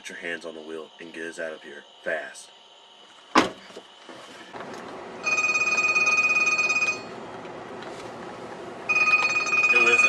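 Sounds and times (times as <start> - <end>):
mobile phone ringing: 5.2 - 7.2, 8.9 - 10.0.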